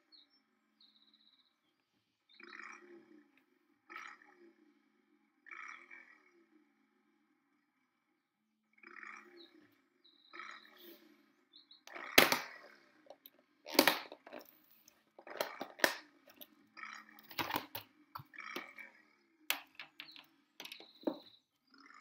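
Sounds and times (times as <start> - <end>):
plastic containers knocking: 11.9 - 14.5, 15.2 - 16.5, 17.2 - 18.8, 19.5 - 21.3.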